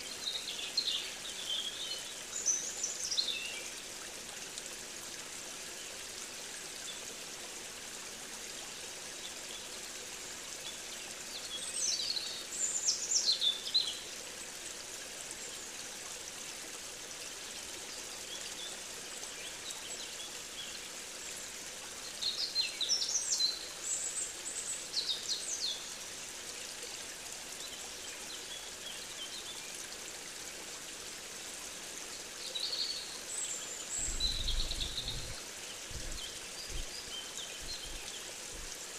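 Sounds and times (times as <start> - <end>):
songbirds singing: 32.4 - 38.7.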